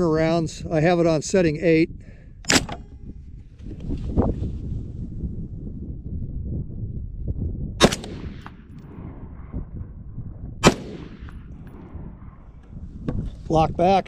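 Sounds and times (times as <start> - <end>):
rifle shots with echo: 2.5 - 2.8, 7.8 - 9.7, 10.6 - 12.7.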